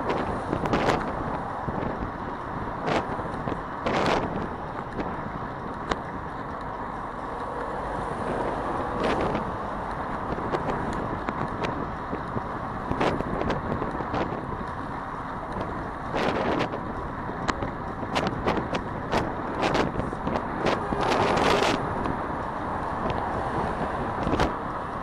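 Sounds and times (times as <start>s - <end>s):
cars passing: 0.0s - 25.0s.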